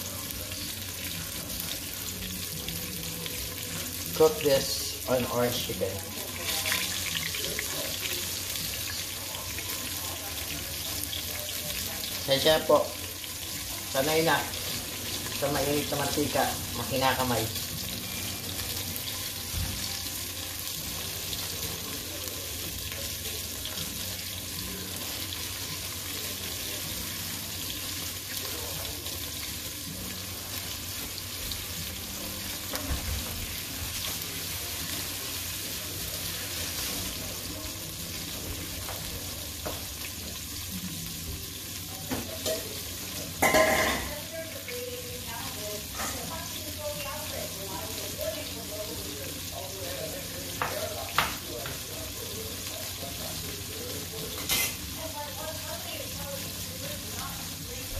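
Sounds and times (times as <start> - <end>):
chicken frying in hot oil: 0.0 - 57.9.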